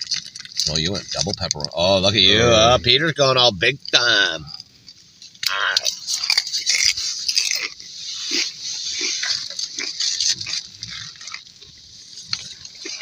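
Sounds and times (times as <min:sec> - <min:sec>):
crunching tortilla chip: 0:00.0 - 0:02.3, 0:05.3 - 0:13.0.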